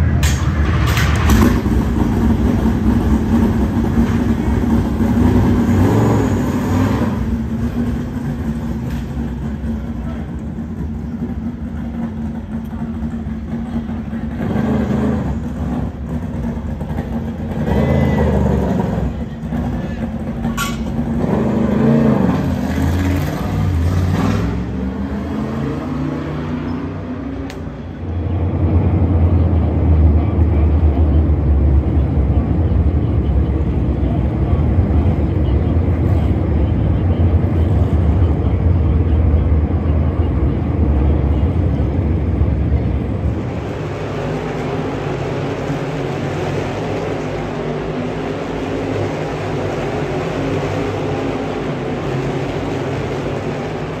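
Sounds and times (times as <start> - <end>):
race car engines rumbling past: 0.0 - 54.0
voices: 29.2 - 54.0.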